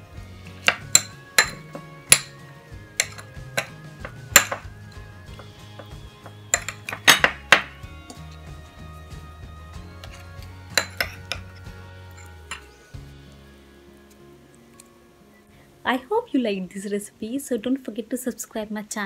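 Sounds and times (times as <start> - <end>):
background music: 0.0 - 19.0
metal spoon clinking on ceramic bowl: 0.7 - 2.3, 3.0 - 3.8, 6.5 - 8.2, 10.1 - 11.5.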